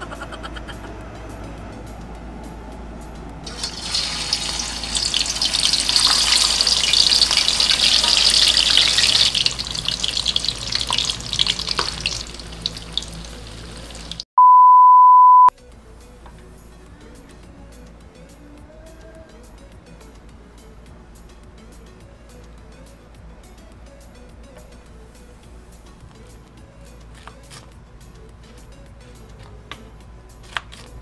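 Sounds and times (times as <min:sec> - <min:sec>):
tofu sizzling in hot oil: 0:03.5 - 0:14.2
steady high beep: 0:14.4 - 0:15.5.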